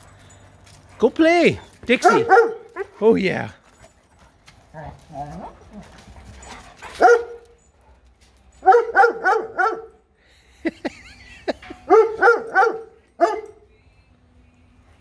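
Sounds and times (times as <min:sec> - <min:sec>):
dog barking: 0:02.0 - 0:02.9, 0:07.0 - 0:07.4, 0:08.6 - 0:10.0, 0:11.9 - 0:13.6.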